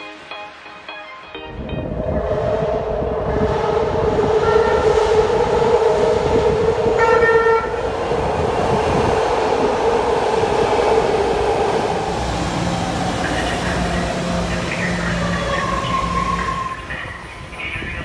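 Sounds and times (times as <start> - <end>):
train whine and rumble: 0.0 - 18.0
train horn blast: 4.4 - 4.9, 7.0 - 7.8.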